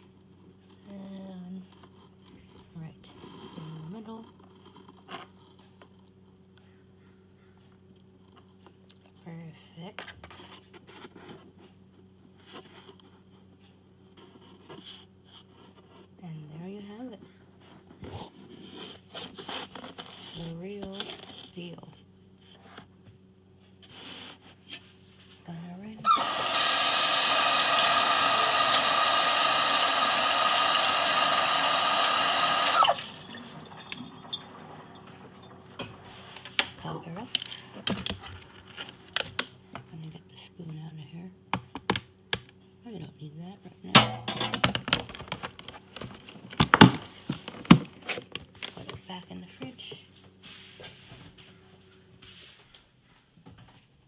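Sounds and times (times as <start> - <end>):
kitchen tap running: 26.1 - 35.8.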